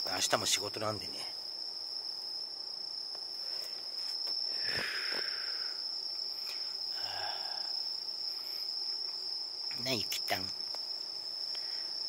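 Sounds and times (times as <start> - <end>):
insects trilling: 0.0 - 12.0
soft rustle: 3.4 - 4.5.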